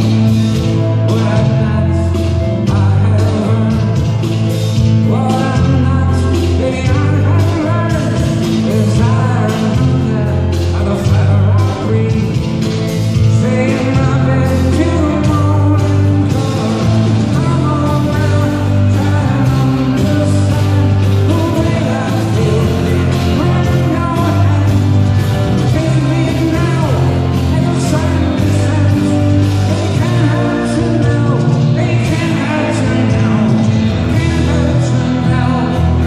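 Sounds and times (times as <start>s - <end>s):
electric guitar: 0.0s - 36.0s
person singing: 0.0s - 36.0s.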